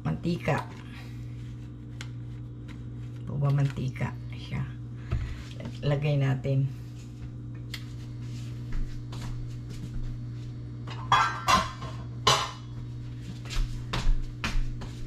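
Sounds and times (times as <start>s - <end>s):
steady low hum: 0.0s - 15.0s
cookware and utensils clinking: 10.9s - 12.7s.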